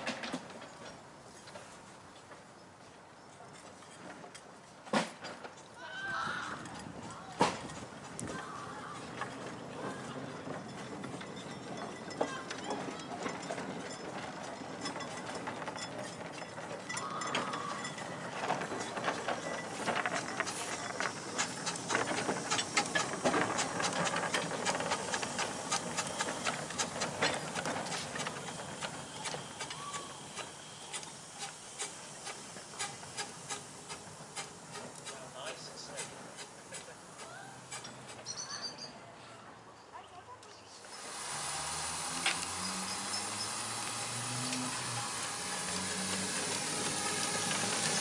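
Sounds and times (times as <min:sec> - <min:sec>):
steam locomotive hissing: 0:07.6 - 0:38.2, 0:40.8 - 0:48.0.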